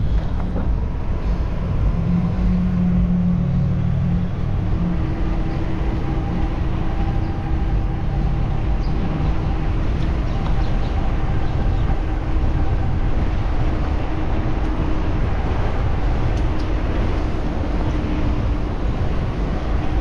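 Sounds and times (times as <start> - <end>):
wind and road rumble: 0.0 - 20.0.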